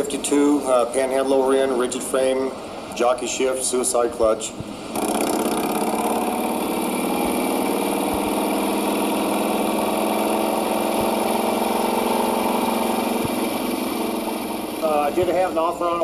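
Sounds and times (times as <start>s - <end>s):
motorcycle engine running: 4.6s - 16.0s.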